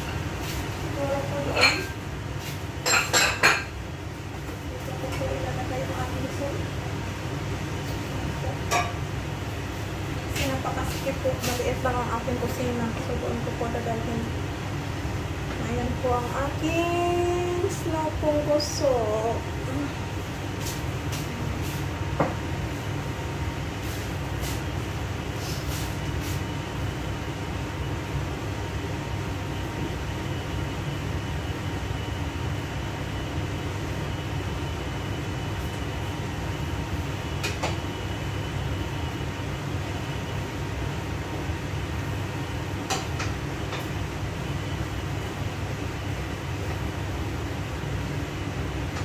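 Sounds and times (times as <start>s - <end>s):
dishes clinking: 1.5s - 2.0s, 2.8s - 3.7s, 8.7s - 9.0s.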